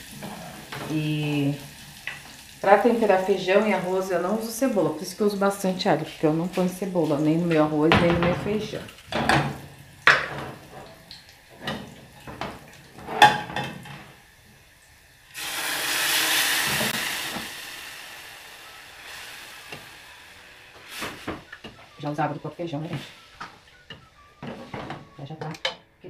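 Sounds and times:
loud sizzle in pan: 0:00.0 - 0:25.0
spoon knocking on metal pots: 0:07.5 - 0:10.9, 0:11.6 - 0:14.1, 0:21.3 - 0:21.9, 0:22.9 - 0:25.9.

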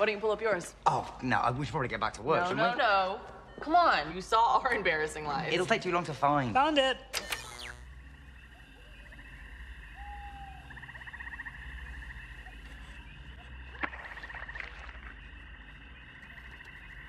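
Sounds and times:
frogs trilling: 0:03.6 - 0:17.0
sharp click: 0:07.1 - 0:07.8.

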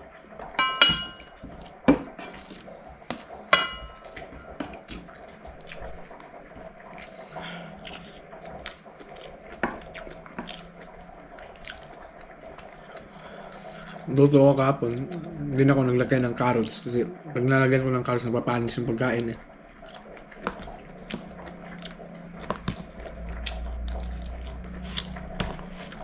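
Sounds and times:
hands tapping metal containers: 0:00.6 - 0:01.3
soft chewing: 0:01.2 - 0:14.1, 0:19.5 - 0:26.0.

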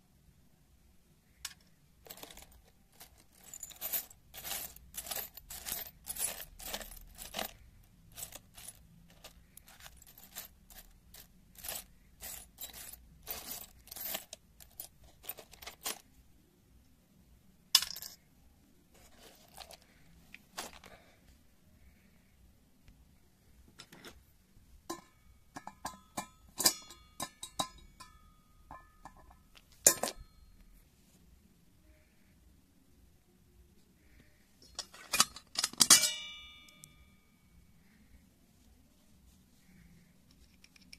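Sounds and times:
metal screws rattling in plastic tub: 0:01.5 - 0:16.0.

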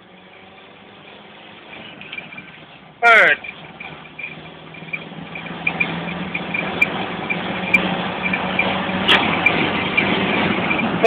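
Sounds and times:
diesel engine revving: 0:00.0 - 0:11.0
faint regular ticking: 0:03.4 - 0:11.0.

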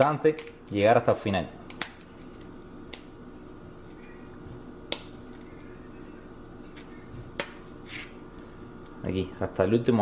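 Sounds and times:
scissors snapping through shell: 0:02.9 - 0:03.1.

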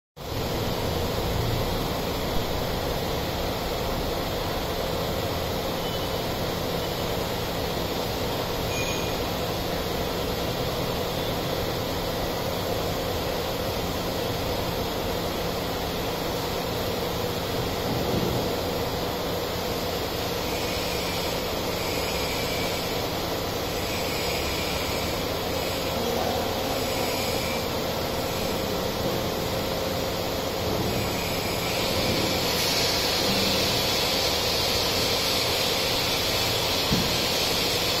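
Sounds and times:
hydraulic lift hum and hiss: 0:00.2 - 0:38.0.

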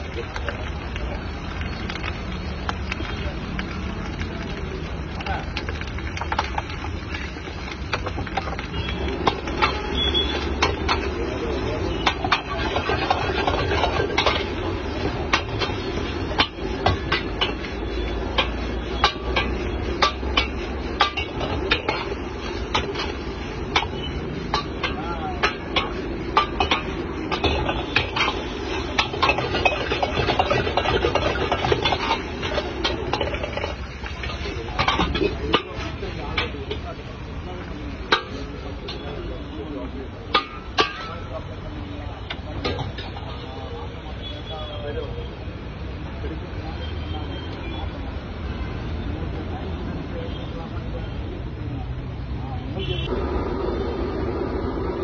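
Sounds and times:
gas burner roaring: 0:00.0 - 0:43.8, 0:52.1 - 0:55.0
metal ladle scraping a wok: 0:06.1 - 0:39.1.

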